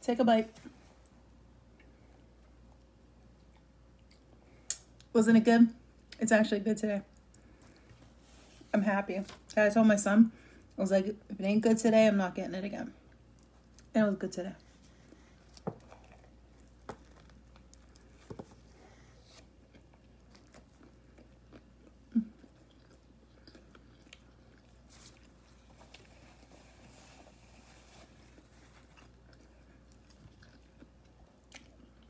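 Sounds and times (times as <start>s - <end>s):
person chewing: 14.6s - 32.0s.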